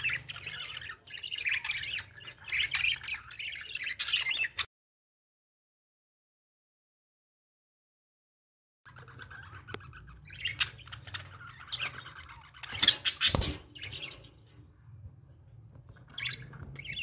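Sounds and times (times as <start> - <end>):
budgerigars chirping and chattering: 0.0 - 4.7, 8.9 - 14.6, 15.9 - 17.0.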